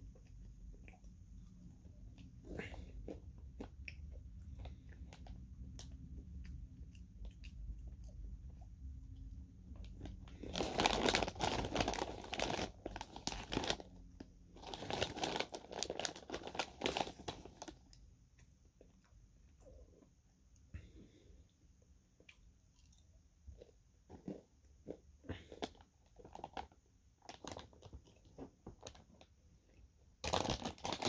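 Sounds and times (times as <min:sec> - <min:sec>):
plastic snack bag crinkling: 0:09.7 - 0:18.0, 0:23.6 - 0:29.3, 0:30.2 - 0:31.0.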